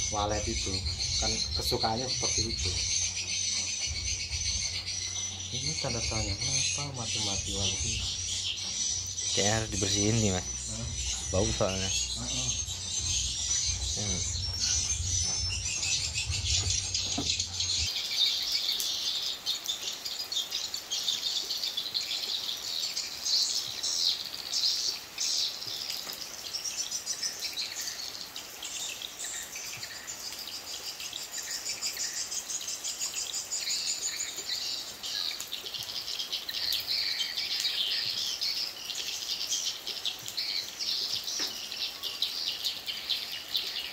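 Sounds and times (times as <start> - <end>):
swiftlets twittering: 0.0 - 17.9
low hum: 7.5 - 17.9.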